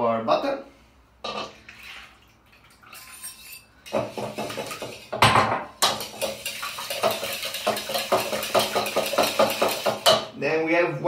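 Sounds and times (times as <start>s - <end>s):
wire whisk clattering in bowl: 2.8s - 10.3s.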